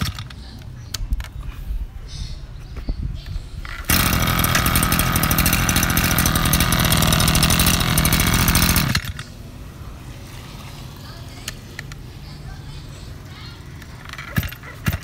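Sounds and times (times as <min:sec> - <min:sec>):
brush cutter engine running: 0:03.7 - 0:09.3, 0:14.0 - 0:15.0.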